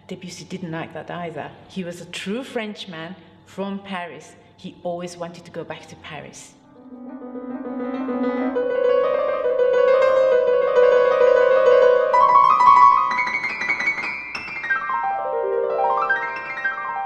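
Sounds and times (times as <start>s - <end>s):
grand piano playing: 6.6s - 17.0s.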